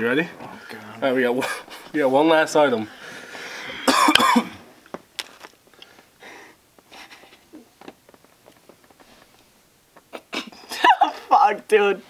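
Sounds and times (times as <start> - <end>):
person coughing: 3.7 - 4.6
rustling: 6.7 - 10.7.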